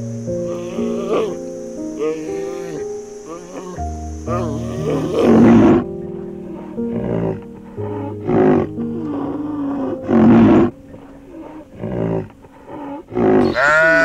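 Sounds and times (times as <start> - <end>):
background music sustained tones: 0.0 - 14.0
rhinoceros rough calls: 0.4 - 14.0
sheep bleating: 13.1 - 14.0.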